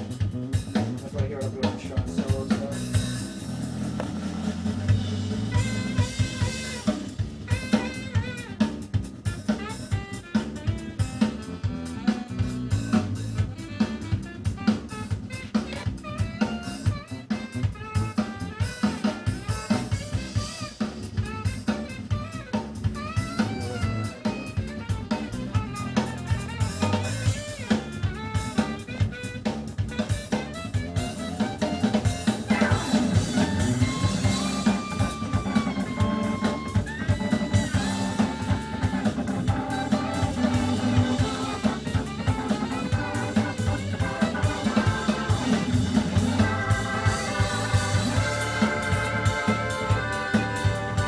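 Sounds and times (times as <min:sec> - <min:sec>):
bass: 0:00.0 - 0:51.0
drum kit beat: 0:00.0 - 0:51.0
held organ chords: 0:00.0 - 0:51.0
melodic lead line: 0:30.7 - 0:51.0.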